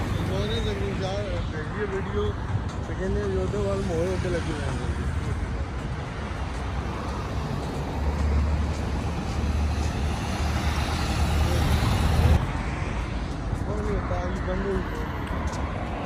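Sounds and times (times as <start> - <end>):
hiss of passing cars: 6.5 - 14.1.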